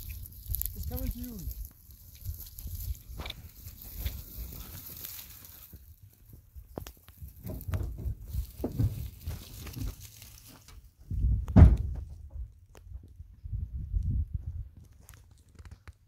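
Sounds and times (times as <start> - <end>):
sharp crackles: 0.0 - 7.7
dry grass rustling and crunching: 0.0 - 11.2
loud thump: 11.2 - 12.2.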